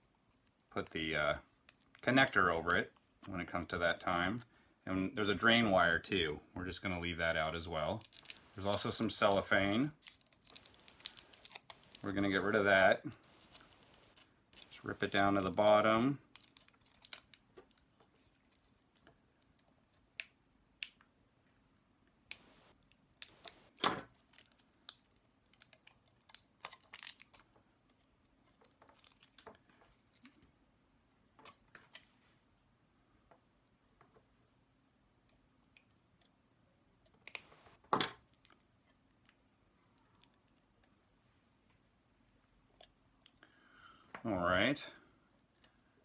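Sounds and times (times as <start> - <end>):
cable wrap crinkling and rustling: 7.3 - 20.2, 22.3 - 30.6.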